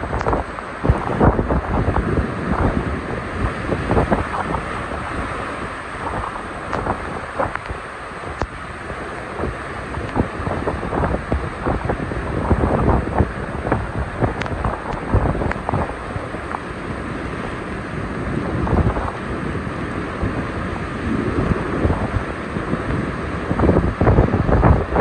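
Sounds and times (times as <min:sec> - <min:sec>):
sharp crackles: 0:00.0 - 0:01.8
torrential rain hiss: 0:00.0 - 0:25.0
wind buffeting microphone: 0:00.0 - 0:25.0.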